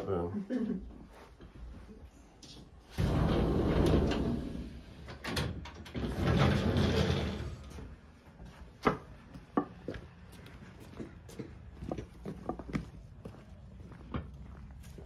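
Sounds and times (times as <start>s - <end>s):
sliding glass door rumbling: 2.8s - 8.0s
sharp footsteps: 8.4s - 15.0s.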